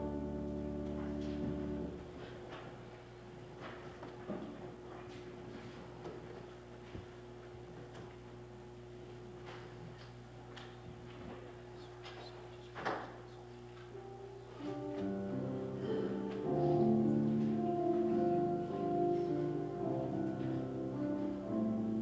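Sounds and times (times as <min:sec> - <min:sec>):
slow keyboard chords: 0:00.0 - 0:06.0, 0:13.2 - 0:22.0.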